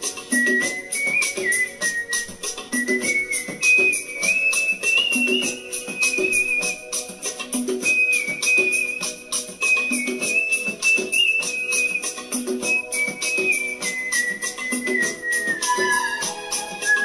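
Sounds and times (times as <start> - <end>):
backing track with shaker beat: 0.0 - 17.0
man whistling into microphone: 0.0 - 17.0.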